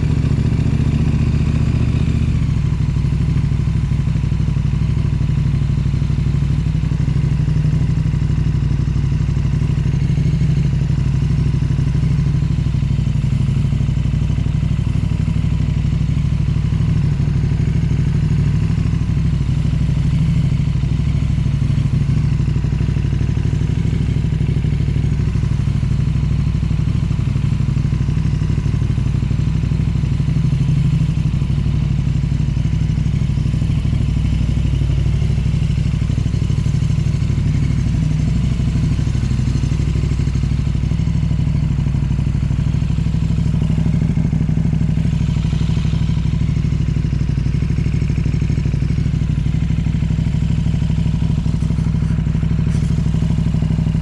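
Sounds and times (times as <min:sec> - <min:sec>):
engine running steadily: 0:00.0 - 0:54.0.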